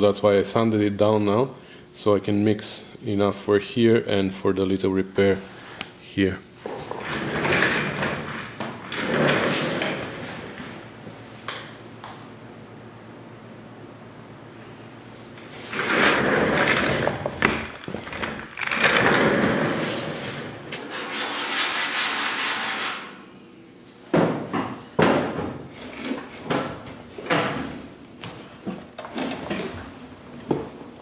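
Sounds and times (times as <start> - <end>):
sandpaper sanding metal: 20.8 - 23.1.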